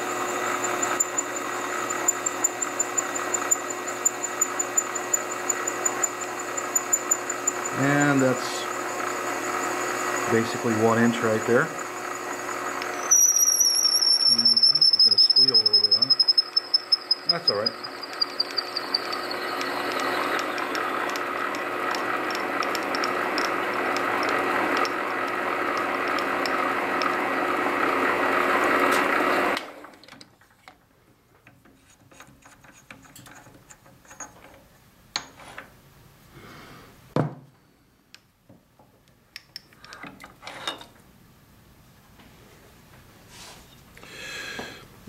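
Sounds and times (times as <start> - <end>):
lathe drilling with whine: 0.0 - 29.8.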